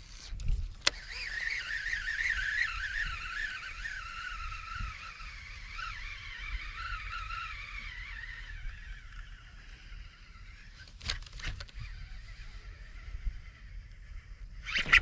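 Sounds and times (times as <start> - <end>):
fishing reel whirring: 0.0 - 15.0.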